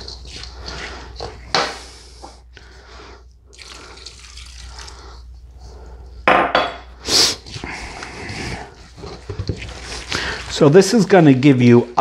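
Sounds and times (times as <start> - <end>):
wet stuffing rustling in a bowl: 0.0 - 1.5, 7.4 - 12.0.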